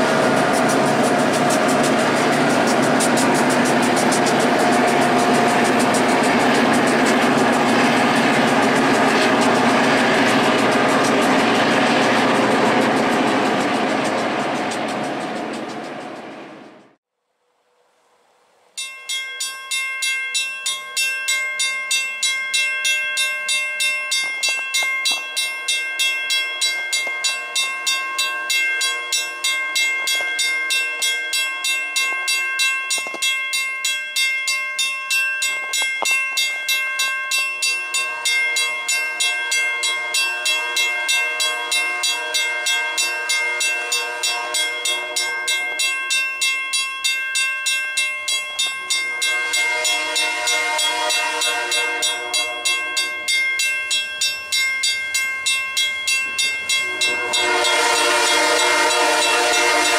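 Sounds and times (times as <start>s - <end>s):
railroad crossing bell ringing: 0.0s - 16.6s, 18.8s - 59.9s.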